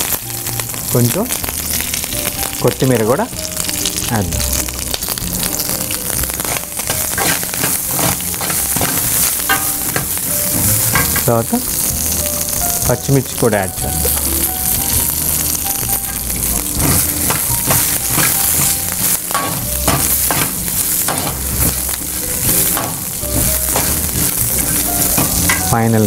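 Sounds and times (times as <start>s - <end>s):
spices sizzling in hot oil: 0.0s - 26.0s
metal ladle scraping pan: 6.4s - 12.2s, 15.9s - 25.8s.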